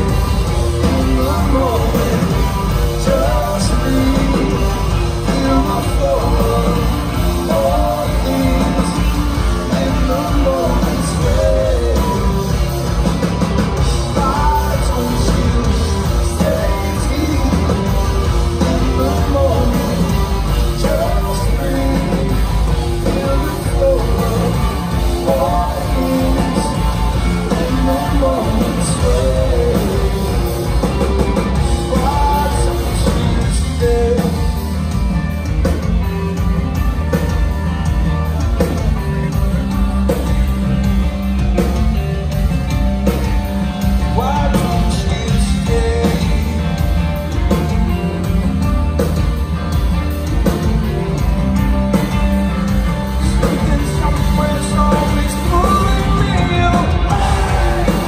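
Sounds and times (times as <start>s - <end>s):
man singing: 0.0s - 13.2s, 13.8s - 35.0s, 43.8s - 48.0s, 53.1s - 58.0s
bass guitar: 0.0s - 58.0s
drum kit: 0.0s - 58.0s
electric guitars: 0.0s - 58.0s.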